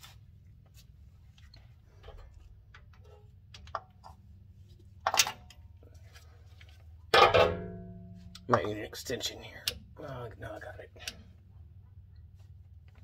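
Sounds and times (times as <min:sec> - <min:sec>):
low steady hum: 0:00.0 - 0:13.0
small metal knocks: 0:07.1 - 0:08.8.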